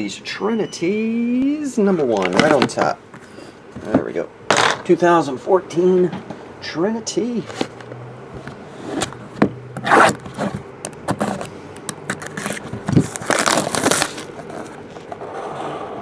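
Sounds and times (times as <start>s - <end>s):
cardboard box scraping and rubbing: 9.8s - 11.5s, 12.2s - 16.0s.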